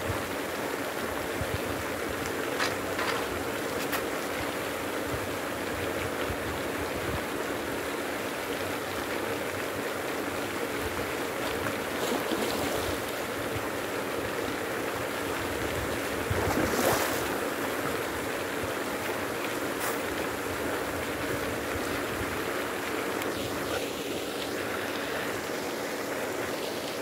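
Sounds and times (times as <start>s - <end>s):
pond aerator splashing: 9.1s - 27.0s.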